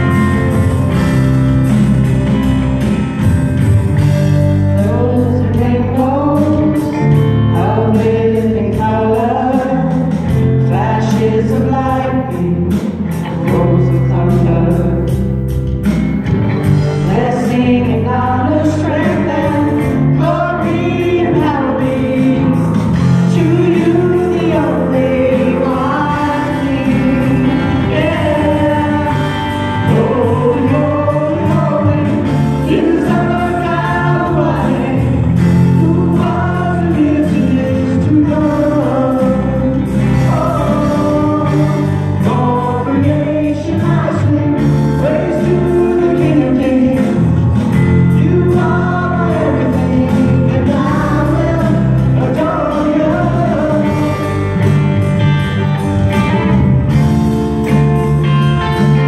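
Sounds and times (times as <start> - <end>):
acoustic guitar: 0.0 - 59.0
bass notes: 0.0 - 59.0
voices singing together: 17.1 - 54.6.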